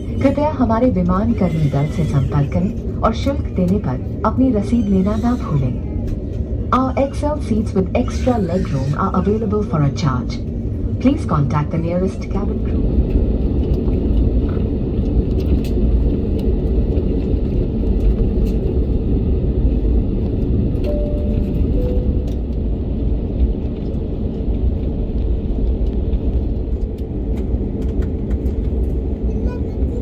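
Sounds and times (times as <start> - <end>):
airplane cabin rumble: 0.0 - 30.0
constant hum: 0.0 - 30.0.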